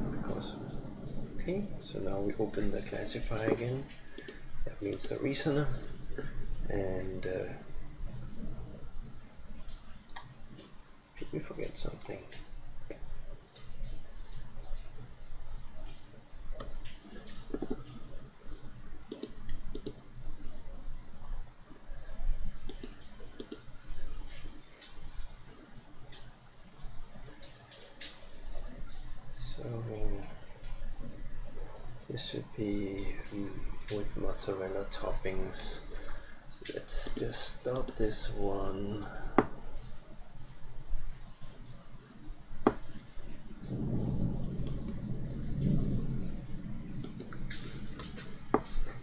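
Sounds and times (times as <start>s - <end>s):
low muffled rumble: 0.0s - 10.0s, 39.0s - 49.0s
computer mouse clicks: 4.2s - 4.4s, 19.1s - 20.0s, 22.6s - 23.7s, 47.0s - 47.5s.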